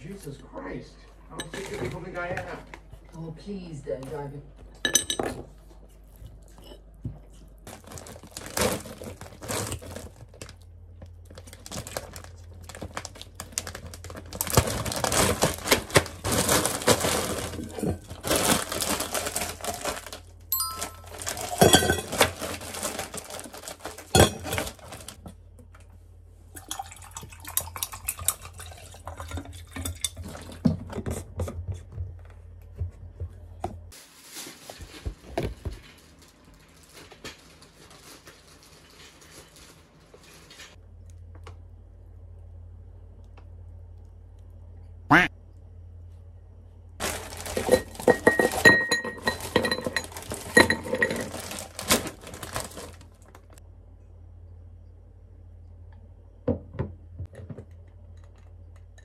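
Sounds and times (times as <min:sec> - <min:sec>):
rustling and crinkling: 0:05.4 - 0:26.0, 0:30.2 - 0:41.5, 0:47.0 - 0:53.6
steady low hum: 0:40.8 - 0:51.4, 0:53.1 - 0:59.0.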